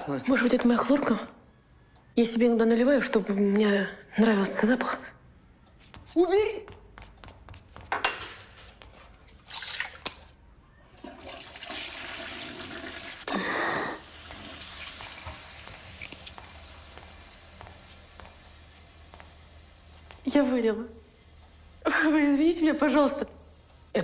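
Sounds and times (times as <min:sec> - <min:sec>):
inhaler puff hiss: 0:13.2 - 0:14.4
breathy sounds: 0:13.3 - 0:14.0.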